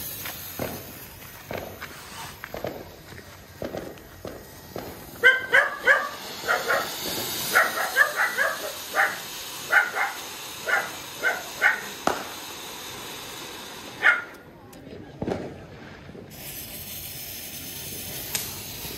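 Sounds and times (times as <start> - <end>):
firework hissing sparks: 0.0 - 18.9
dog barking: 5.2 - 6.9, 7.5 - 11.9, 14.0 - 14.4.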